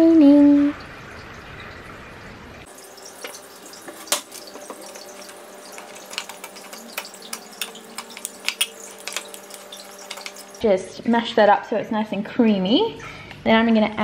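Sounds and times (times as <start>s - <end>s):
fork clinking against glass jug: 2.8s - 10.6s.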